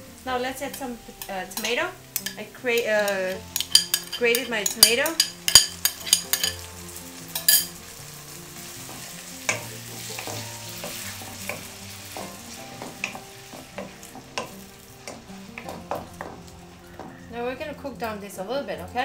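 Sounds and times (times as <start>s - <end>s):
tomato sizzling in hot oil: 0.0s - 19.0s.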